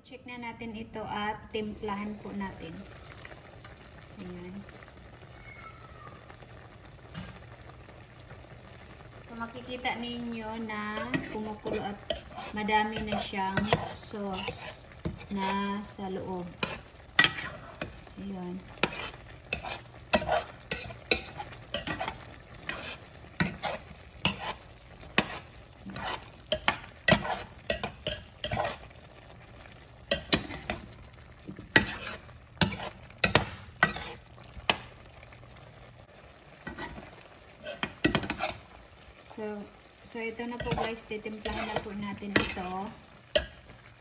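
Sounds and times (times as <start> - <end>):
sauce boiling: 0.3 - 44.0
spoon scraping a pan: 9.5 - 29.0, 29.7 - 34.9, 36.6 - 39.0, 39.8 - 43.9.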